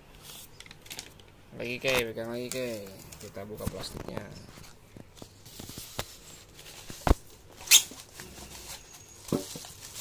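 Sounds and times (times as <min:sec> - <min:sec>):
plastic bag crinkling: 0:07.6 - 0:10.0.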